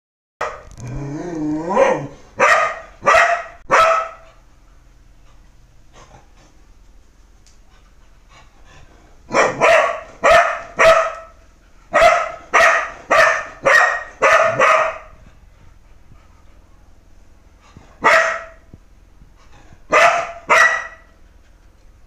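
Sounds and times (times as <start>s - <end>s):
dog barking: 0.4s - 0.6s, 1.8s - 4.3s, 9.3s - 15.1s, 18.0s - 18.6s, 19.9s - 21.1s.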